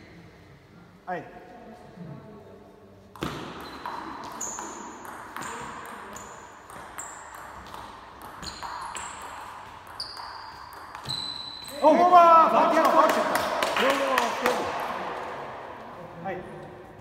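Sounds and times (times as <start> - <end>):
table tennis ball hits: 3.2 - 11.4.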